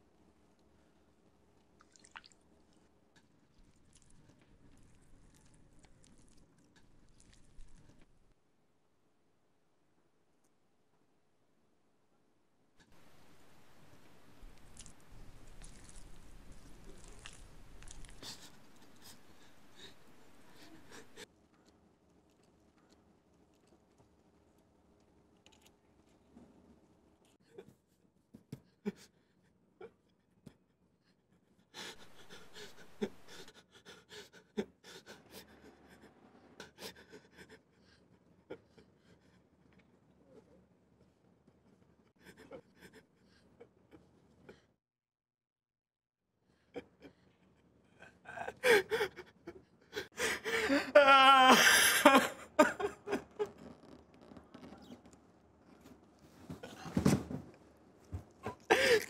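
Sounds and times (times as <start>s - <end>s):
man panting: 31.8s - 39.4s, 48.0s - 49.3s, 49.9s - 52.2s, 58.4s - 59.0s
man sobbing and wailing: 47.9s - 53.5s, 58.5s - 59.0s.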